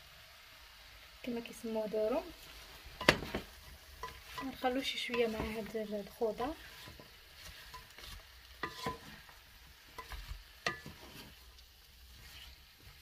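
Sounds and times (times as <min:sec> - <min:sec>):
food sizzling in a frying pan: 0:00.0 - 0:13.0
spatula tapping and scraping pan: 0:03.0 - 0:13.0.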